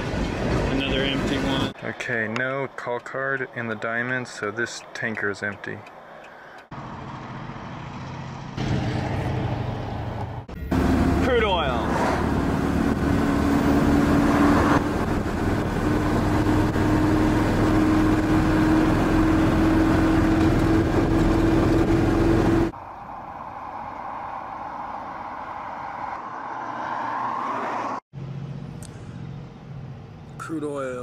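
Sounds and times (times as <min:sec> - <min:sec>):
car road and engine drone: 0:00.0 - 0:31.0
faint rising tone: 0:22.5 - 0:30.0.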